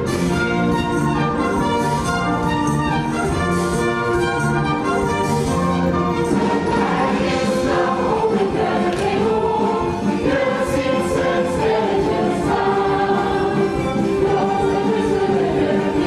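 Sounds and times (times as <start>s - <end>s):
musical accompaniment: 0.0s - 16.0s
ensemble singing in chorus: 6.3s - 16.0s.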